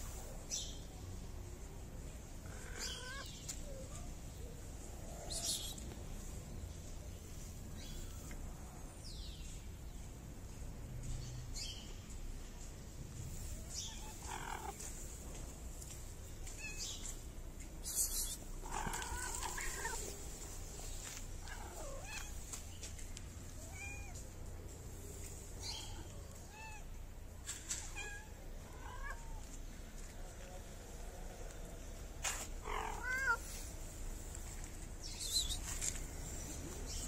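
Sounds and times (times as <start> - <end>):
cat meowing: 23.6 - 24.2, 27.9 - 29.5, 32.6 - 33.6.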